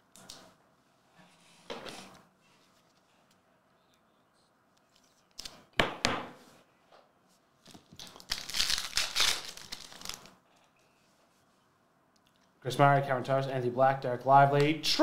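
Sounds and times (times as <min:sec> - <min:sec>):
foil wrapper crinkling and tearing: 0:08.0 - 0:10.4.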